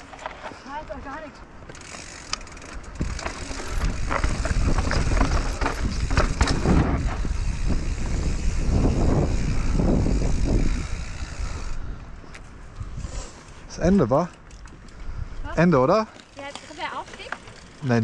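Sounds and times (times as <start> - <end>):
tyres crunching over dirt: 0.0 - 7.3
bike rattling and knocking: 0.0 - 10.4, 16.1 - 18.0
wind rumbling on microphone: 2.6 - 14.1, 14.7 - 15.8.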